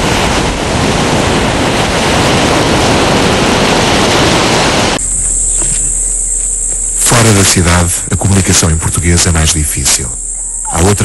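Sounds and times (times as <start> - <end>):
sea surf: 0.0 - 5.0
wind on microphone: 0.0 - 7.4
high-pitched hiss: 4.8 - 11.0.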